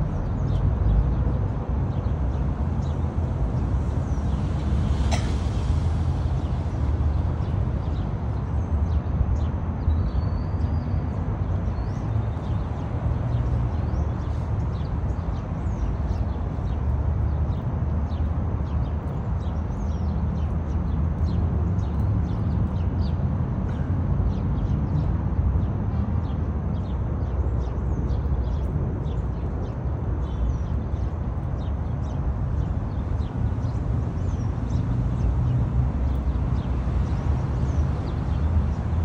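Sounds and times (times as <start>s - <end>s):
steady low rumble: 0.0s - 9.0s
small birds chirping: 0.0s - 39.0s.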